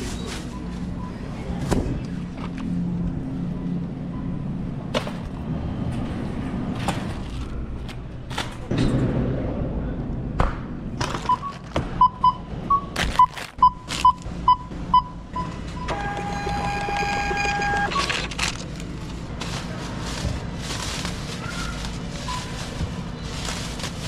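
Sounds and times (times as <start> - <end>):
short electronic beeps: 11.3 - 18.2
held electronic tone: 15.4 - 18.1.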